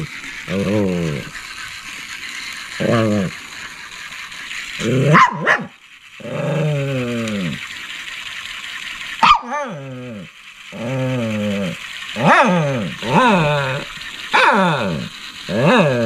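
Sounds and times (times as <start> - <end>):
small dog whining barks: 9.2 - 9.8.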